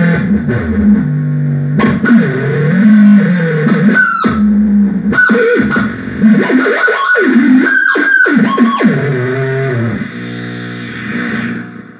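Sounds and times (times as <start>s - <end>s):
distorted buzzing synthesizer tones: 7.8s - 11.9s.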